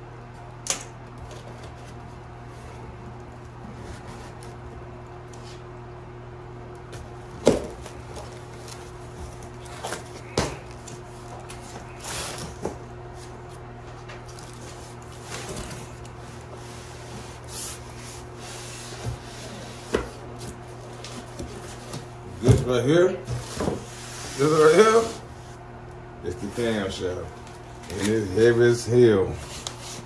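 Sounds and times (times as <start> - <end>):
steady low hum: 0.0 - 30.0
cardboard rustling and scraping: 7.4 - 25.3.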